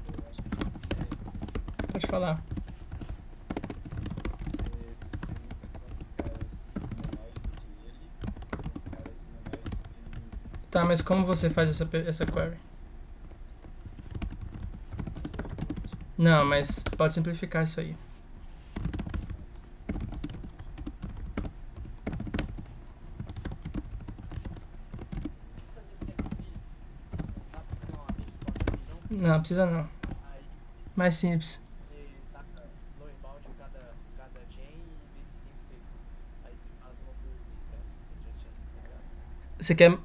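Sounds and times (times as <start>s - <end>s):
typing on computer keyboard: 0.0s - 7.6s, 8.2s - 12.4s, 13.6s - 16.0s, 18.8s - 25.3s, 26.0s - 29.2s.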